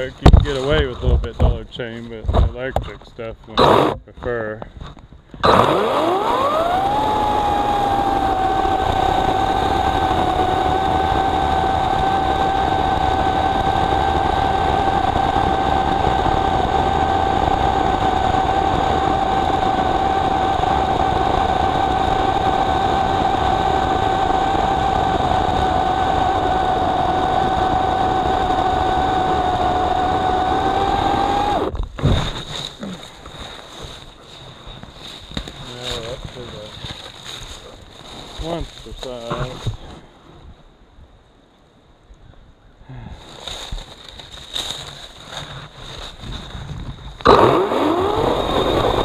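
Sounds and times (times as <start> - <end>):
electric chainsaw motor whine: 3.6 - 4.0, 5.4 - 31.8, 47.2 - 49.0.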